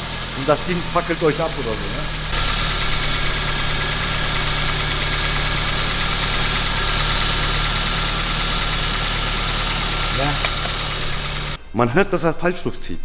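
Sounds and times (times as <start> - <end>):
car engine idling: 0.0 - 11.7.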